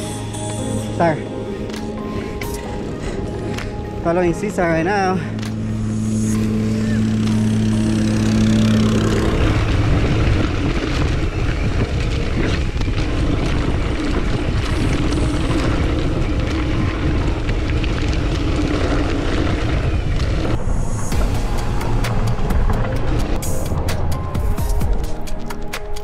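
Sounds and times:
steady low hum: 0.0s - 24.4s
wind rush on microphone: 2.0s - 26.0s
bike rattling over bumps: 6.8s - 26.0s.

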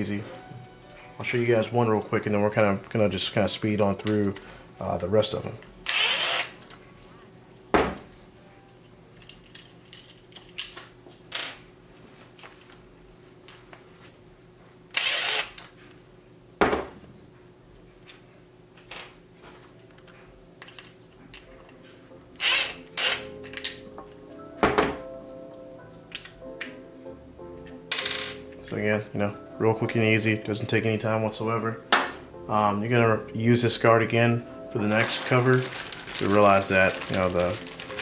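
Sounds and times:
faint background music: 0.0s - 11.1s, 19.3s - 38.0s
cordless drill spinning: 5.9s - 6.5s, 15.0s - 15.5s.

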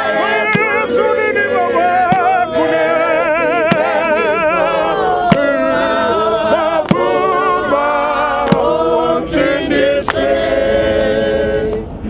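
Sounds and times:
man singing with vibrato: 0.0s - 11.7s
men singing: 0.0s - 12.0s
sharp percussive beat: 0.5s - 1.2s, 2.0s - 5.8s.

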